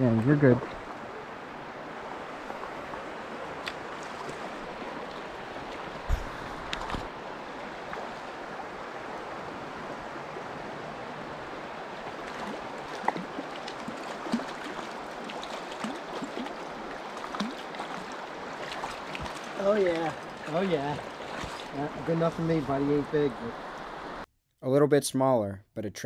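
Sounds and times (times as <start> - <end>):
stream rushing over rocks: 0.0 - 24.2
fish splashing: 2.5 - 8.3, 12.0 - 21.8.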